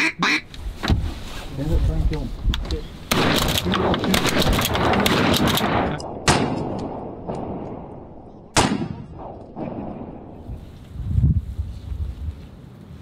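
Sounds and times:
shotgun shots: 0:03.1 - 0:07.9, 0:08.5 - 0:10.3.

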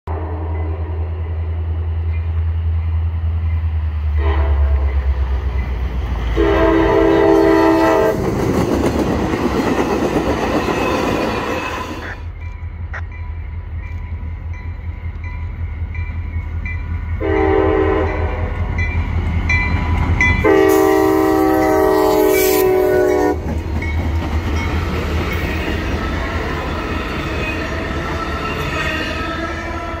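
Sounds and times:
train rumbling on rails: 0:00.1 - 0:30.0
locomotive air horn blasts: 0:04.2 - 0:05.0, 0:06.3 - 0:08.2, 0:17.2 - 0:18.7, 0:20.4 - 0:23.4.

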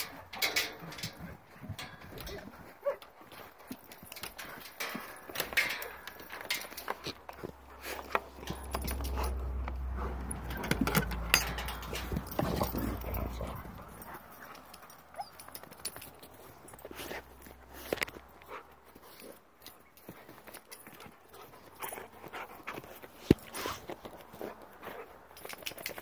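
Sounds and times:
scattered clicks and knocks: 0:00.0 - 0:16.8
dog sounds: 0:02.3 - 0:04.6, 0:07.0 - 0:26.0.

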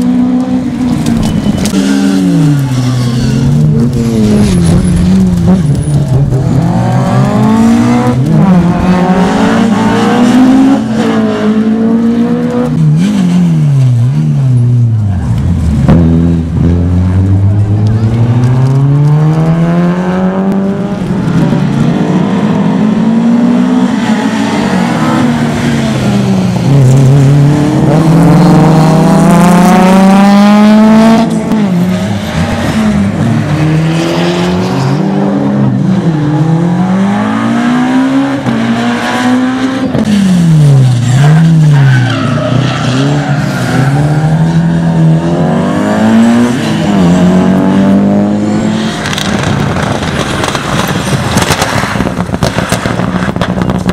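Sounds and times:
rally car engines revving: 0:00.0 - 0:53.9
tyre squeal: 0:01.1 - 0:05.2.

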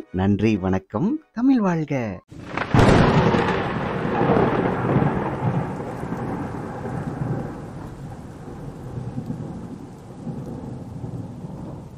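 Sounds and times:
steady rain: 0:02.3 - 0:11.9
thunder rumbling: 0:02.3 - 0:11.9.

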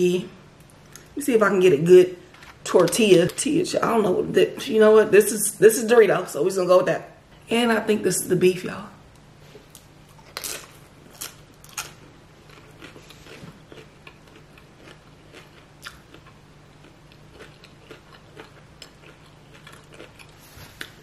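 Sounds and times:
crunching bites of chip: 0:09.8 - 0:21.0.

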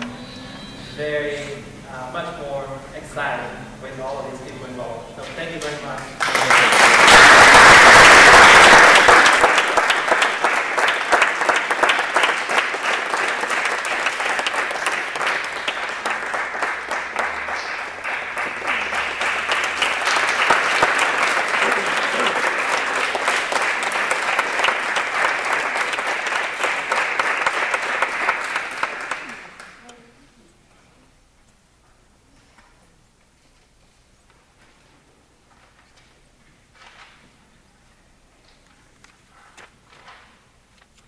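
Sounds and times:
audience applauding: 0:05.6 - 0:29.8.

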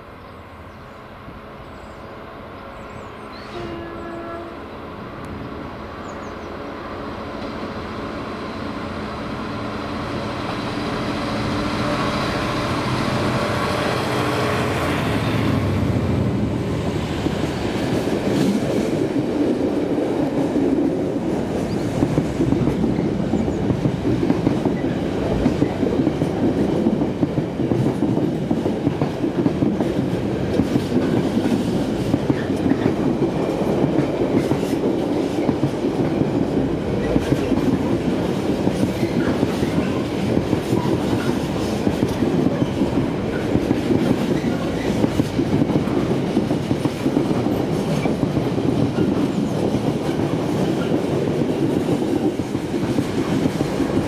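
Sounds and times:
train wheels clacking over rail joints: 0:20.2 - 0:54.0.

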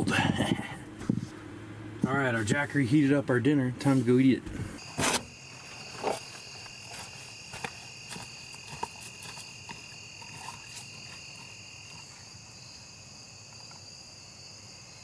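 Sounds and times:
footsteps on grass and dry leaves: 0:04.8 - 0:12.3
insects trilling: 0:04.8 - 0:15.0.

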